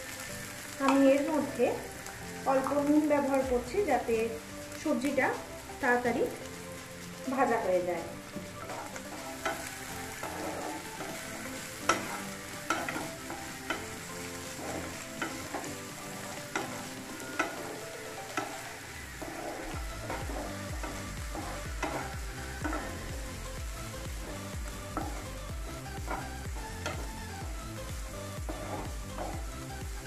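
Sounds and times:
vegetables sizzling in oil: 0.0s - 30.0s
utensil clicking against pan: 11.0s - 14.2s, 16.4s - 18.7s, 19.7s - 23.1s, 24.9s - 27.2s.

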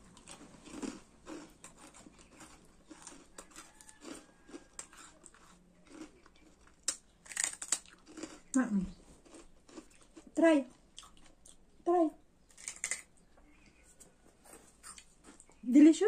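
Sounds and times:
rice cracker crunching: 0.0s - 8.6s, 9.2s - 10.3s, 12.5s - 13.1s.

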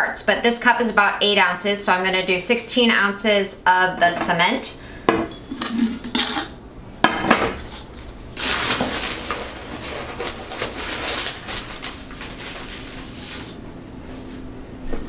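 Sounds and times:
plastic bag rustling: 7.6s - 13.8s.

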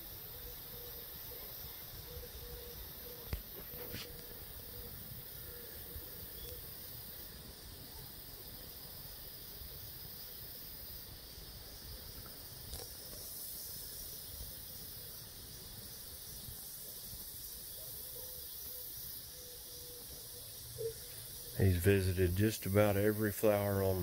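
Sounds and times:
high hiss: 0.0s - 24.0s.

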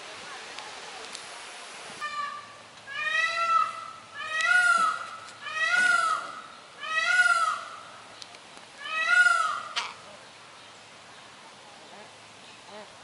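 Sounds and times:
peafowl calling: 2.0s - 8.0s, 8.8s - 10.0s.

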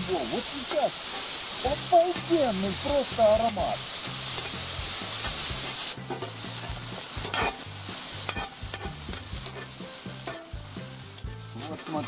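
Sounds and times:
mushrooms sizzling in a pan: 0.0s - 12.0s
metal spatula scraping a pan: 4.3s - 10.6s, 11.5s - 12.0s.

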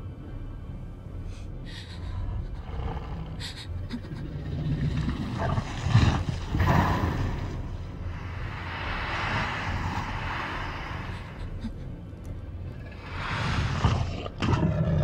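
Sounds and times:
creature heavy breathing and snorting: 8.1s - 15.0s.

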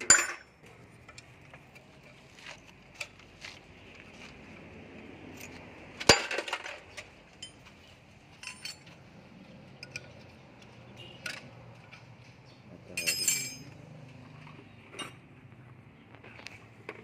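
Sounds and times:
metal tools clinking: 0.0s - 1.9s, 5.3s - 9.0s, 9.8s - 10.3s, 12.9s - 13.8s, 14.9s - 15.2s.

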